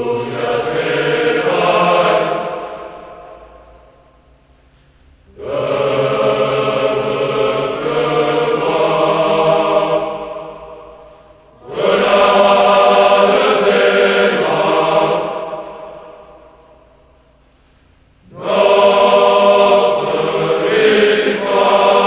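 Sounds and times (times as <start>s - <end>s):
choir singing held chords: 0.0s - 4.5s, 5.3s - 22.0s.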